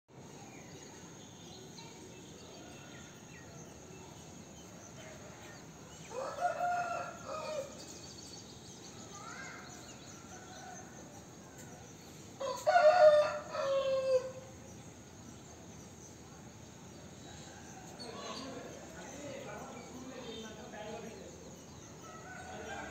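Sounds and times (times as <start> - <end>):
rooster crowing: 6.1 - 7.7, 12.4 - 14.4
faint bird chirps: 7.0 - 12.7.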